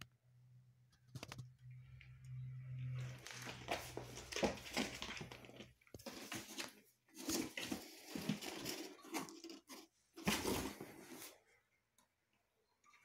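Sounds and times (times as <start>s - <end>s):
rustling and scuffling: 3.0s - 11.5s.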